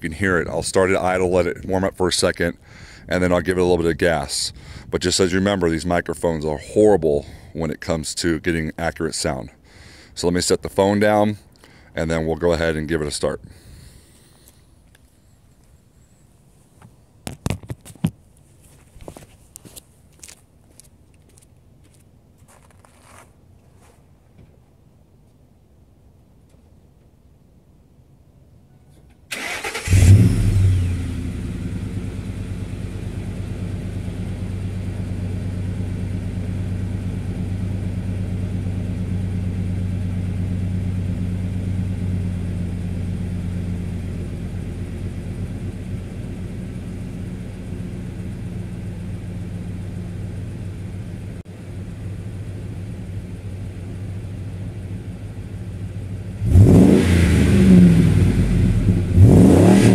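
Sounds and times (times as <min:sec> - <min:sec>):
engine cranking and starting: 0:29.3 - 0:31.4
engine revving: 0:29.4 - 0:33.2, 0:56.4 - 0:59.9
engine idling: 0:29.4 - 0:59.3.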